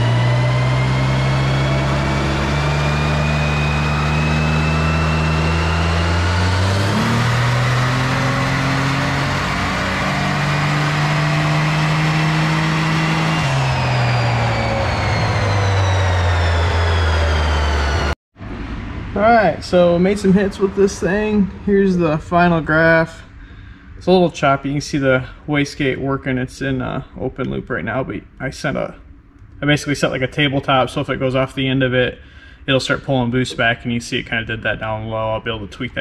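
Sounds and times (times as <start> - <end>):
car engine revving at full throttle: 0.0 - 21.4
high whine: 0.0 - 25.2.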